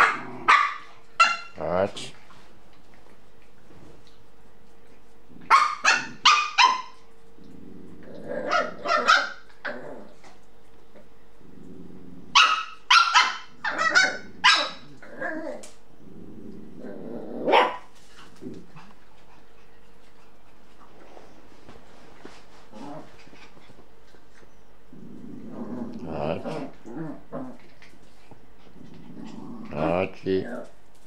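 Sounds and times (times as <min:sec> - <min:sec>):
dog growling: 0:00.0 - 0:01.0, 0:07.3 - 0:12.4, 0:13.5 - 0:19.6, 0:22.7 - 0:23.7, 0:24.8 - 0:30.8.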